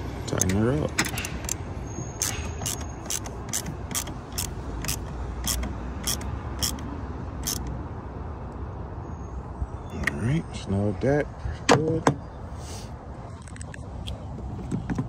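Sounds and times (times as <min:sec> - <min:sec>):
socket ratchet clicking: 0:00.4 - 0:07.7.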